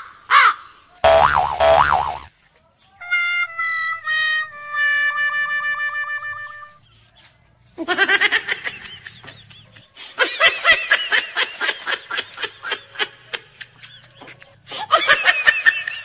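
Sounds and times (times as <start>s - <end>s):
high-pitched laughter: 7.8s - 16.0s.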